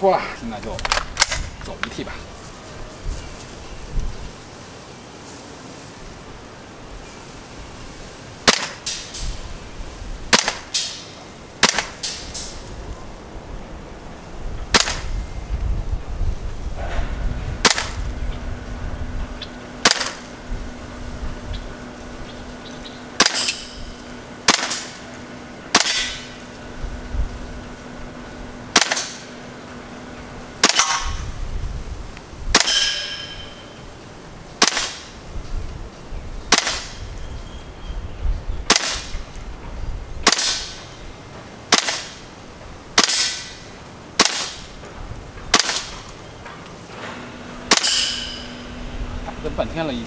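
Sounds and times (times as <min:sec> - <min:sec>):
airsoft rifle shots: 0:00.7 - 0:01.5, 0:08.4 - 0:09.3, 0:10.3 - 0:12.6, 0:14.7 - 0:15.2, 0:17.6 - 0:18.0, 0:19.8 - 0:20.3, 0:23.2 - 0:23.8, 0:24.4 - 0:25.1, 0:25.7 - 0:26.4, 0:28.7 - 0:29.3, 0:30.6 - 0:31.2, 0:32.5 - 0:33.4, 0:34.6 - 0:35.2, 0:36.5 - 0:37.1, 0:38.7 - 0:39.2, 0:40.2 - 0:40.9, 0:41.7 - 0:42.3, 0:43.0 - 0:43.6, 0:44.2 - 0:44.8, 0:45.5 - 0:46.1, 0:47.7 - 0:48.5.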